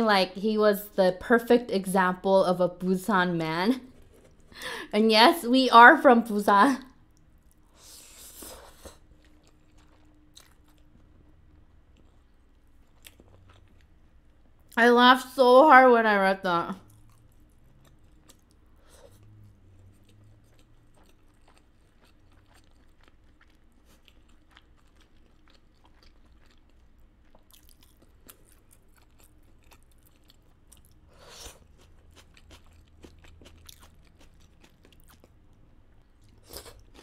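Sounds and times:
person chewing food: 0:03.8 - 0:04.6, 0:07.0 - 0:14.8, 0:16.8 - 0:37.0.

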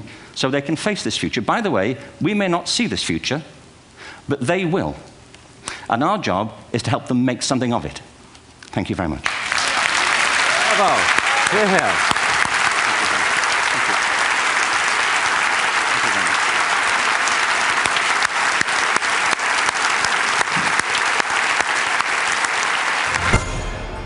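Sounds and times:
large audience applauding: 0:09.2 - 0:23.5
short musical sting: 0:23.1 - 0:24.0.

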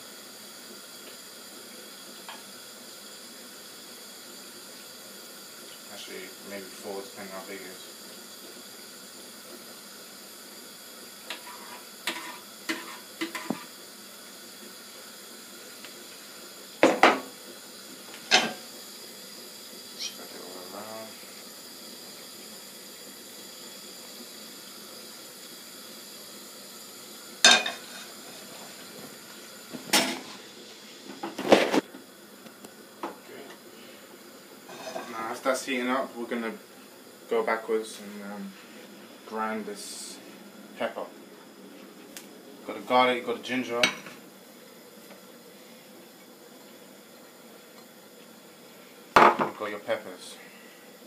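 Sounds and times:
metal pans clattering on hob: 0:11.3 - 0:13.7, 0:27.4 - 0:28.1, 0:29.9 - 0:30.4, 0:34.7 - 0:35.2.

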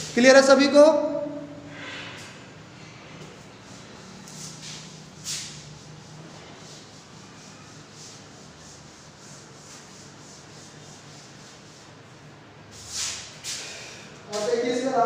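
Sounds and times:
cloth rubbing chalkboard: 0:03.2 - 0:14.8.

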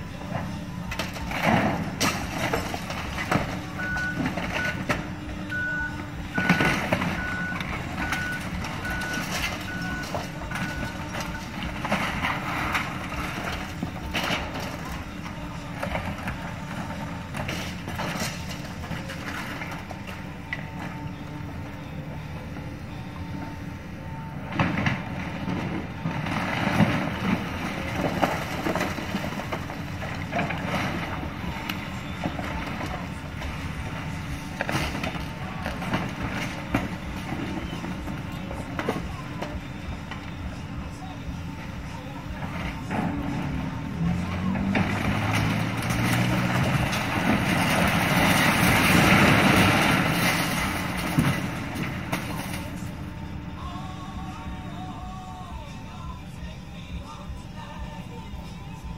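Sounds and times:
excavator engine running: 0:00.0 - 0:58.9
timber cracking and debris crashing: 0:00.3 - 0:05.2, 0:06.2 - 0:20.5, 0:24.5 - 0:40.6, 0:41.7 - 0:53.3.

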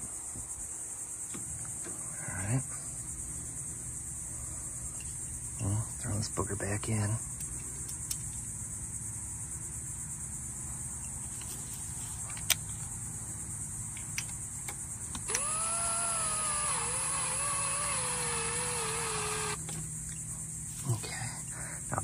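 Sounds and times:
crickets chirring: 0:00.0 - 0:22.0
power tool motor whining: 0:15.3 - 0:19.6.

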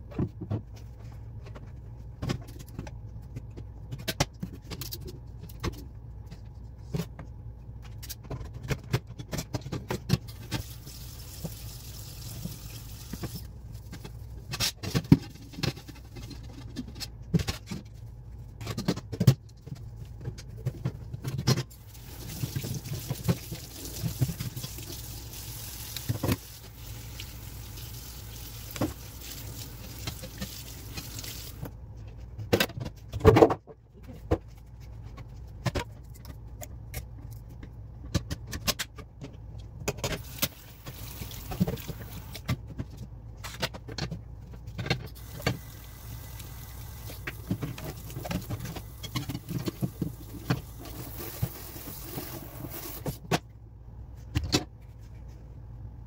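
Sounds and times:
faucet water running: 0:10.4 - 0:13.5, 0:21.8 - 0:31.7, 0:40.2 - 0:42.4, 0:45.2 - 0:53.2
plastic parts clattering on sink: 0:47.1 - 0:53.2.

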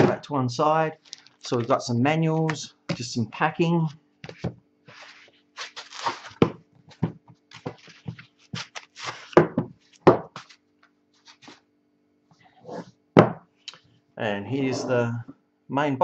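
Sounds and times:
foam scraping on cardboard: 0:04.9 - 0:06.4
knocks on wooden desk: 0:13.2 - 0:13.5.

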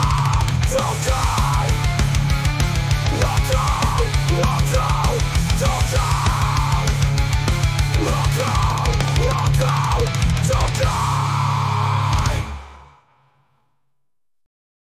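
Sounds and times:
fast dense drumming: 0:00.0 - 0:12.5
heavy electric guitars: 0:00.0 - 0:13.2.

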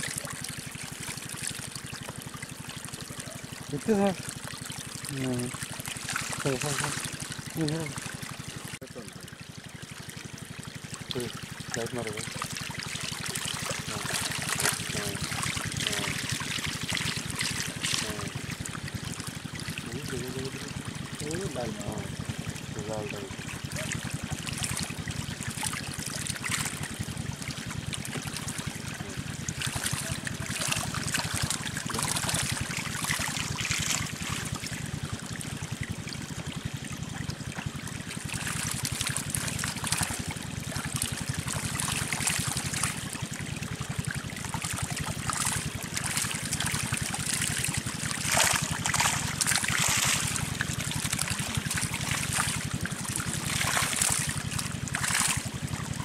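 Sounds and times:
shallow water trickling and splashing: 0:00.0 - 0:56.0.

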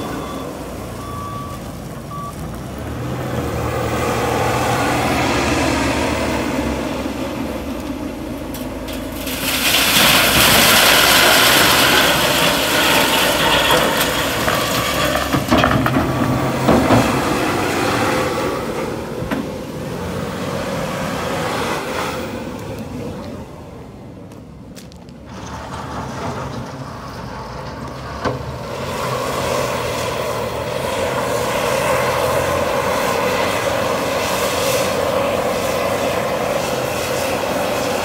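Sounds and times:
diesel engine running under load: 0:00.0 - 0:23.9, 0:25.5 - 0:38.0
crushed stone pouring into trailer: 0:08.6 - 0:17.4.

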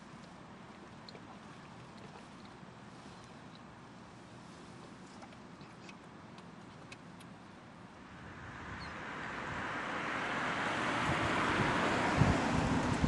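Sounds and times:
wind buffeting microphone: 0:08.2 - 0:13.0.

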